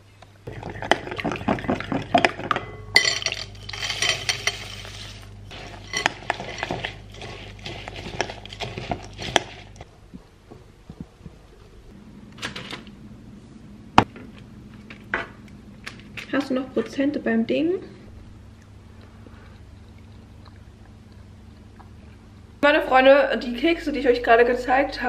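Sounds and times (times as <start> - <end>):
spoon scraping bowl: 0.8 - 9.8
metal spoon clinking glass bowl: 2.2 - 4.9, 5.8 - 6.8.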